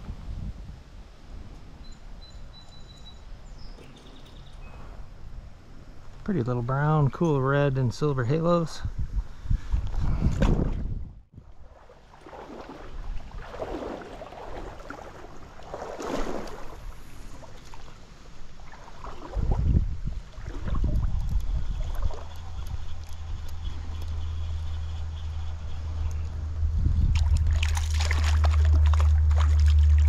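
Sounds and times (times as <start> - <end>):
low wind rumble on microphone: 0.0 - 2.4, 7.8 - 17.6, 18.3 - 30.0
stream water splashing: 11.4 - 23.3, 27.0 - 30.0.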